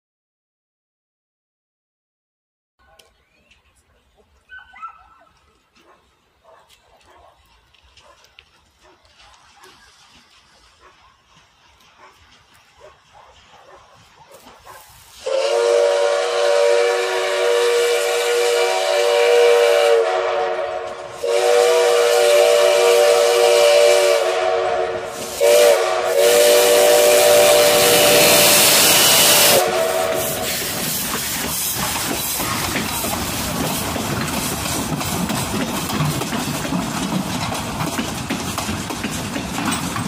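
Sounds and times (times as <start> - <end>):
locomotive hissing steam: 13.4 - 40.0
steam locomotive whistle: 15.1 - 31.0.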